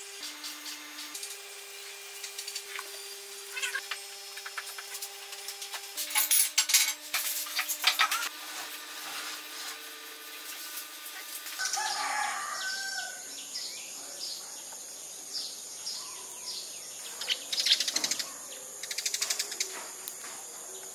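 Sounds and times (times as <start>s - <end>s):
high-pitched background whine: 0.0s - 20.9s
wing flutter: 0.3s - 12.2s
sparrows chirping: 11.6s - 20.9s.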